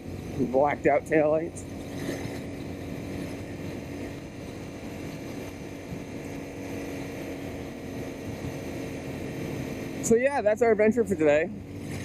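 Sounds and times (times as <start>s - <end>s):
motorcycle engine cruising: 0.0s - 12.0s
wind and road noise: 0.0s - 12.0s.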